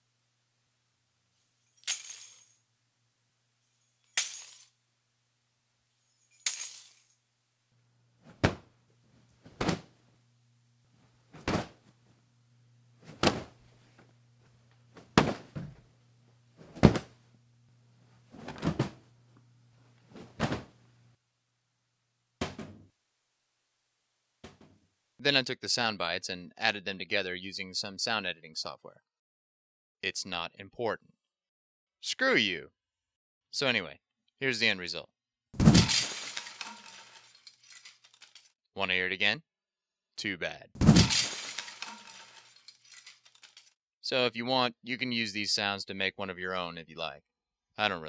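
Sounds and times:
dull thuds on floor: 8.3s - 8.7s, 9.4s - 9.9s, 11.4s - 11.9s, 13.0s - 13.6s, 15.0s - 15.9s, 16.6s - 17.2s, 18.3s - 19.0s, 20.2s - 20.7s
junk clattering on tiled floor: 35.6s - 38.5s, 40.8s - 43.8s.

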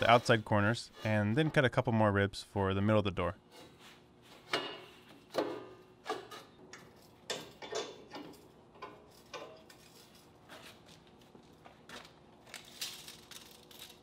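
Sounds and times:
light metal clanks and taps: 6.7s - 9.8s.

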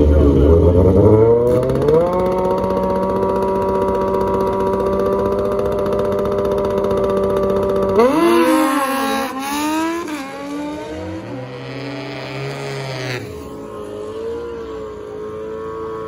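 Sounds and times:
lower engine note: 0.0s - 16.0s
race car engine revving: 0.0s - 16.0s.

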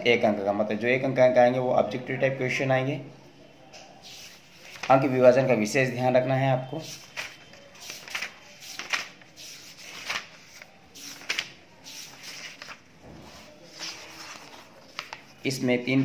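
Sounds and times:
book pages turning: 4.0s - 5.1s, 6.8s - 15.5s.

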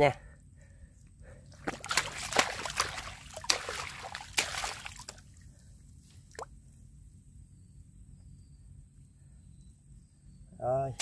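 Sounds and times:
hands squelching in wet mud: 1.5s - 5.5s
sharp wet smacks: 1.6s - 5.3s
water splashing: 1.6s - 5.4s.

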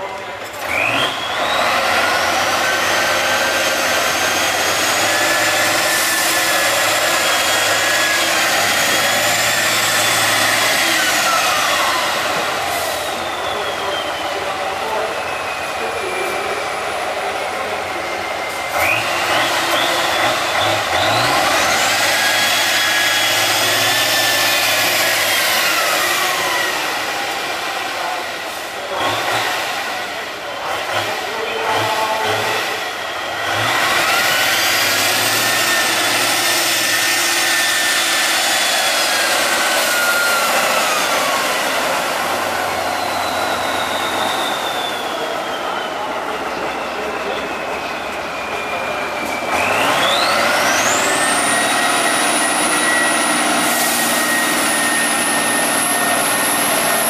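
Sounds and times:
truck engine revving: 0.0s - 57.0s.

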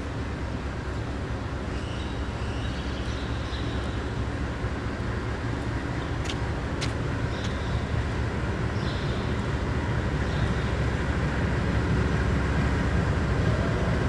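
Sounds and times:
freight train rumbling: 0.0s - 14.0s.

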